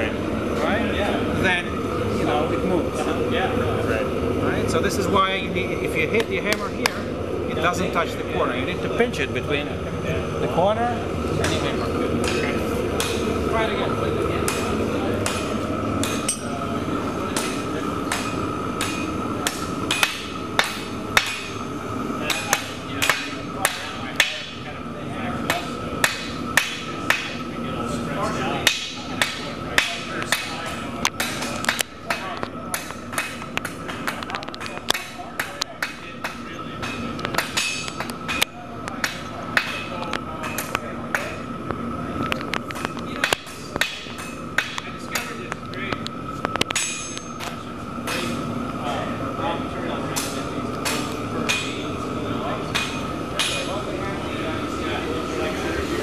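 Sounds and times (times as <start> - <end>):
steady hum: 0.0 - 56.0
hammer striking steel on anvil: 15.2 - 16.7, 17.4 - 21.6, 25.5 - 27.4, 28.6 - 30.6, 34.9 - 38.4, 46.7 - 47.5, 50.2 - 51.8.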